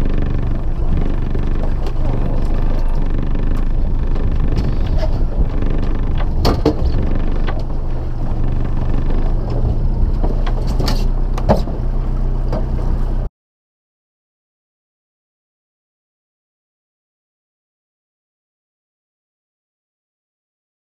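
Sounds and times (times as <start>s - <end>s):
wind and water noise: 0.0s - 13.2s
outboard motor running: 0.0s - 13.3s.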